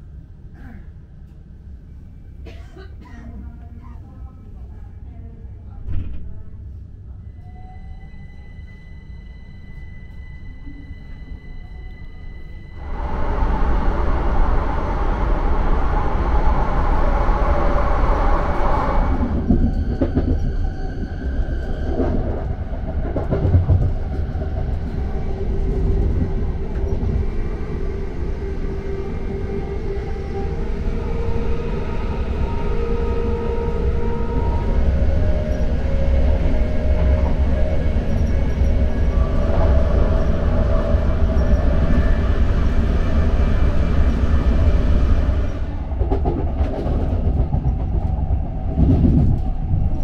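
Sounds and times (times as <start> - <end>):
train wheels rumbling on track: 12.8 - 50.0.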